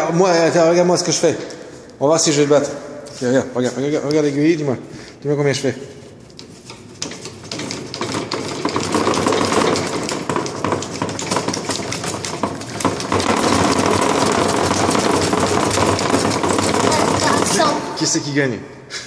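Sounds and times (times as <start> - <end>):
hand-cranked pump rattling: 6.2 - 18.0.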